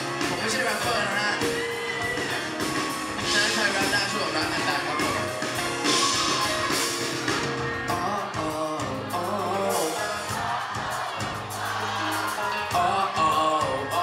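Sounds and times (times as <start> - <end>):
live pop band: 0.0 - 14.0
sustained bass notes: 0.0 - 14.0
man singing into a microphone: 7.9 - 10.4, 12.6 - 14.0.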